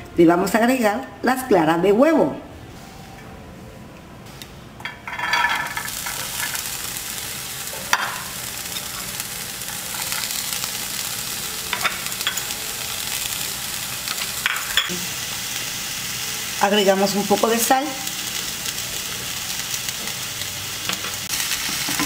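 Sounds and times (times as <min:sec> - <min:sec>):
vegetables sizzling in hot oil: 0:05.4 - 0:22.0.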